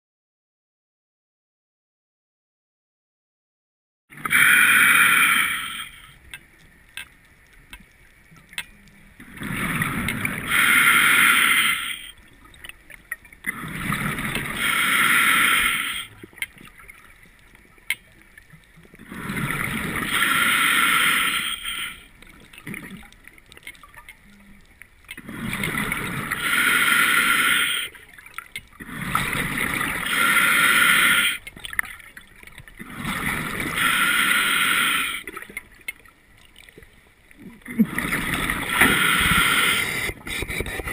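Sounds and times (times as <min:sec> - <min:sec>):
diver breathing through regulator: 0:04.2 - 0:06.2, 0:09.4 - 0:12.2, 0:13.5 - 0:16.2, 0:19.0 - 0:22.1, 0:25.2 - 0:28.0, 0:28.8 - 0:31.5, 0:32.8 - 0:35.4, 0:37.8 - 0:40.9.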